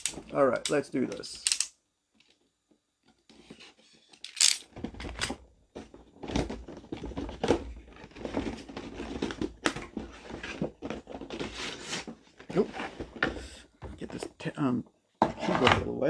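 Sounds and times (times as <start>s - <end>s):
cardboard rustling and crinkling: 3.1s - 14.5s.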